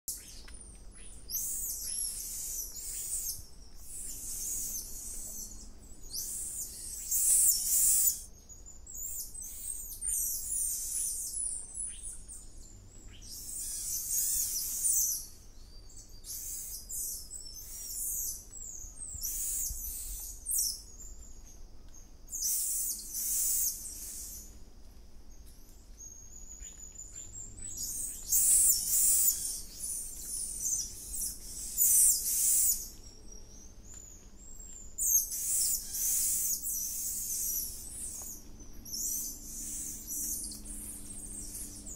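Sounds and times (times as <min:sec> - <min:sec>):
monkeys chirping and whistling: 0:06.2 - 0:08.3, 0:28.1 - 0:32.9, 0:35.0 - 0:38.3.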